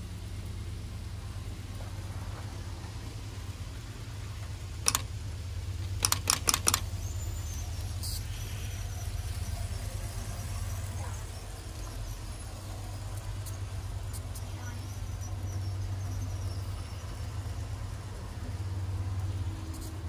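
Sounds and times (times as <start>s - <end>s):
telegraph key clicks: 4.8s - 5.1s, 6.0s - 6.9s.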